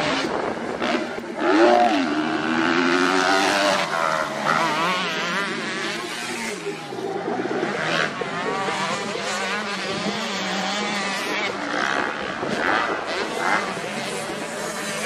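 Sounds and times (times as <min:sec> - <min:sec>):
motocross engines revving: 0:00.0 - 0:15.0.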